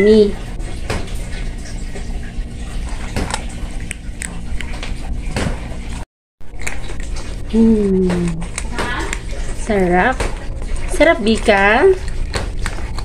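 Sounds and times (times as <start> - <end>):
cat crunching dry food: 6.5 - 7.4, 11.9 - 13.0.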